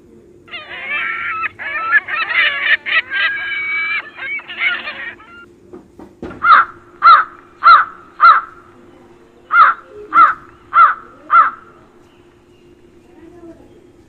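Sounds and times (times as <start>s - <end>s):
crow cawing: 0.5s - 5.5s, 6.4s - 8.7s, 9.5s - 12.0s.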